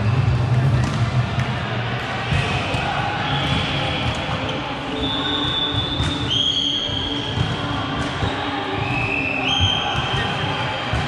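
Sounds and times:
voices in a large hall: 0.0 - 11.0
high whistle-like tones: 3.2 - 7.4, 8.2 - 10.2.

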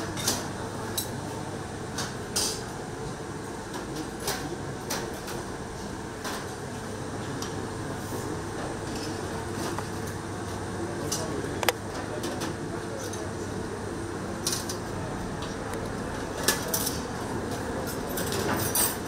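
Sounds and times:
steady background hum: 0.0 - 19.0.

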